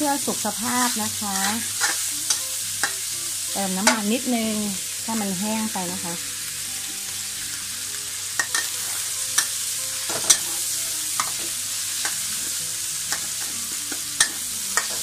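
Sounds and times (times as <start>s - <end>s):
food sizzling in hot oil: 0.0s - 15.0s
metal spatula scraping wok: 0.3s - 4.1s, 8.2s - 15.0s.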